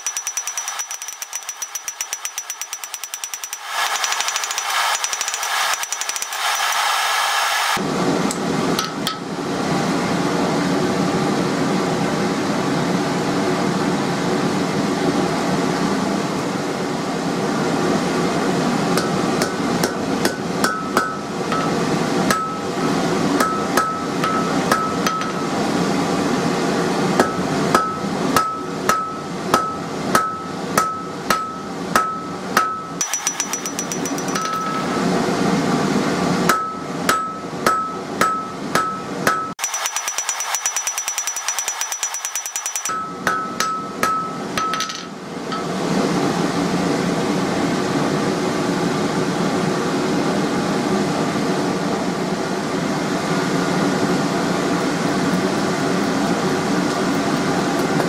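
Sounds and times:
hammer ringing on anvil: 0.0s - 6.7s, 19.0s - 22.8s, 23.4s - 25.6s, 27.2s - 35.1s, 36.5s - 45.7s
continuous rushing noise: 0.0s - 58.0s.

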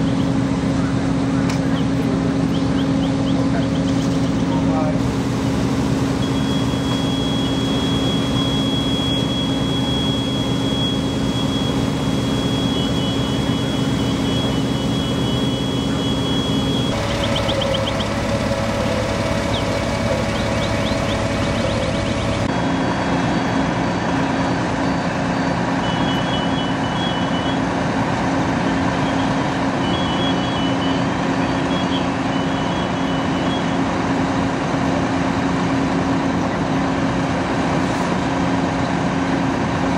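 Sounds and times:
diesel engines humming: 0.0s - 39.9s
high electronic beeping: 6.0s - 22.5s.

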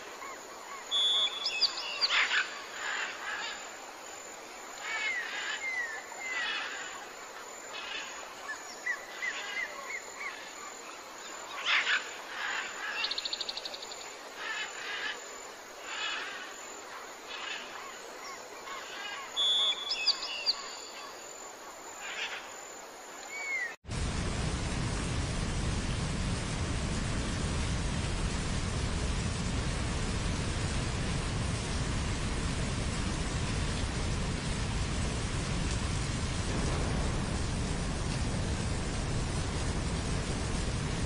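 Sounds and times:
faint hiss: 0.0s - 41.0s
birds chirping and trilling: 0.7s - 3.6s, 17.3s - 21.2s
steady rushing noise: 23.8s - 41.0s.

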